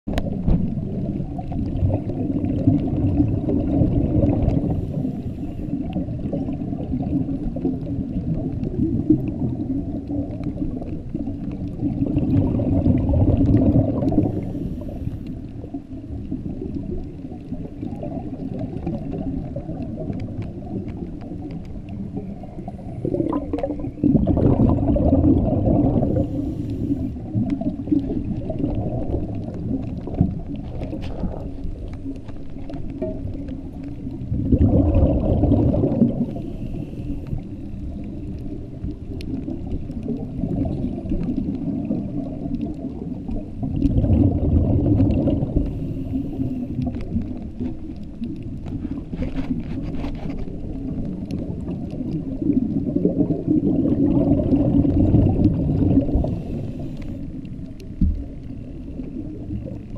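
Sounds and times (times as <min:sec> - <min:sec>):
underwater bubbling rumble: 0:00.0 - 0:59.9.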